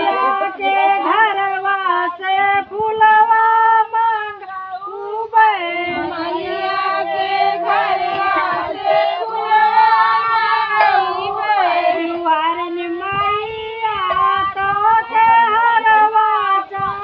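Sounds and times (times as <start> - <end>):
women singing together: 0.0 - 17.0.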